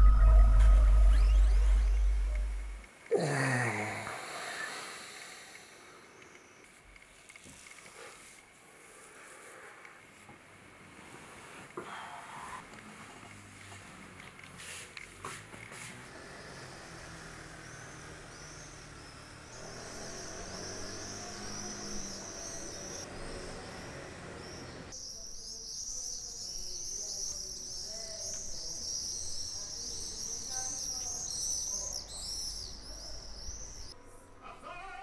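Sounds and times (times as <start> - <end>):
faint low hum: 0.0 - 2.9
small birds chirping: 0.0 - 2.9, 16.2 - 34.0.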